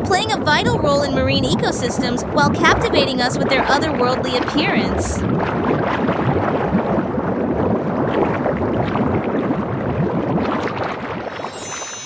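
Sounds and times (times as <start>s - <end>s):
underwater bubbling and gurgling: 0.0s - 12.0s
small underwater crackles: 2.9s - 12.0s.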